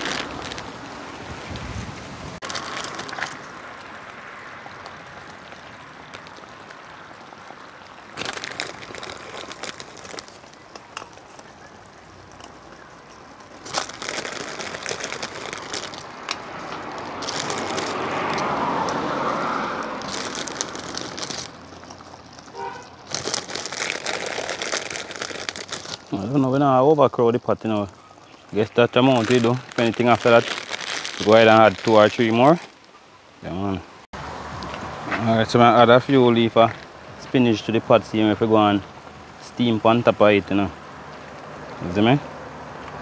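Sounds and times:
plastic packet crinkling: 0.0 - 0.8, 2.4 - 3.6, 4.8 - 6.9, 7.6 - 12.6, 13.2 - 18.5, 19.8 - 32.9.

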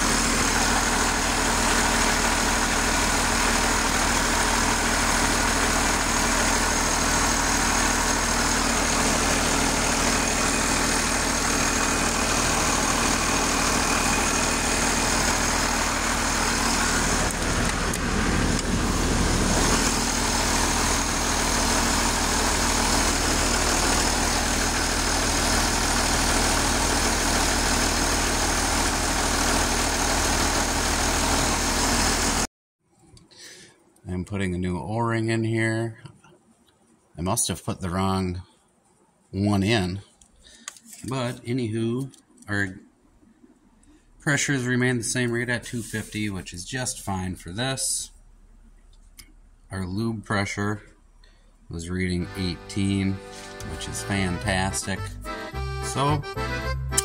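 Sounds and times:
diesel tractor engine running: 0.0 - 32.5, 44.0 - 57.0.

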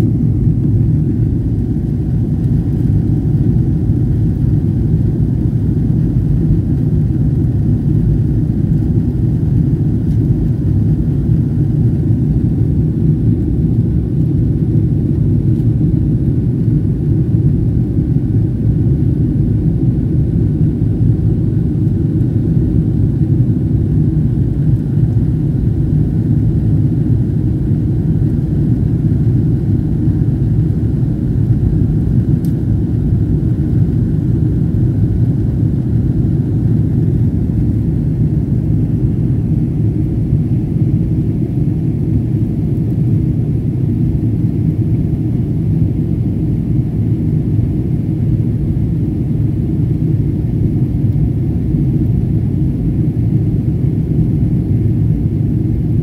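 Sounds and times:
jet engines rumbling: 0.0 - 56.0.

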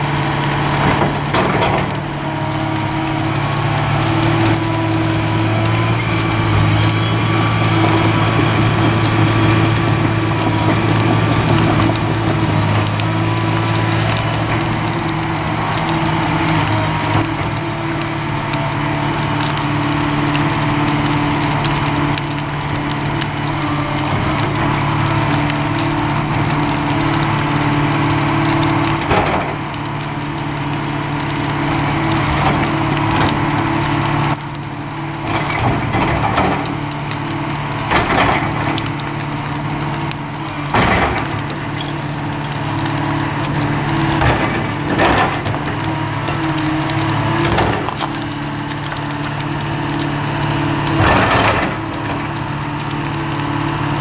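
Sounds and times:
excavator engine under load: 0.0 - 54.0
wood cracking and splintering: 0.0 - 54.0.

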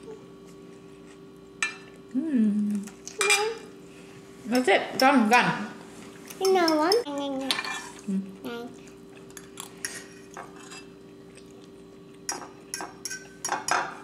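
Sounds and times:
faint steady hum: 0.0 - 14.0
cutlery clinking on ceramic bowls: 6.4 - 7.9, 12.3 - 14.0.

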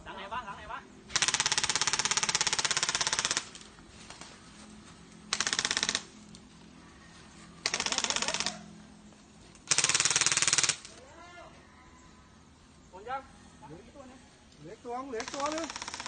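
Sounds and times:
airsoft gun bursts: 1.1 - 3.6, 5.3 - 6.2, 7.6 - 8.7, 9.6 - 11.0, 15.2 - 16.0.

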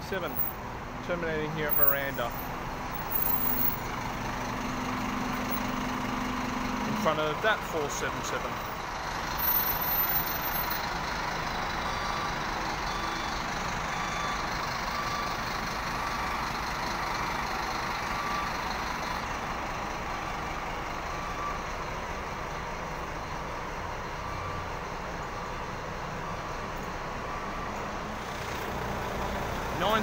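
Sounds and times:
bus diesel engine running: 0.0 - 30.0.

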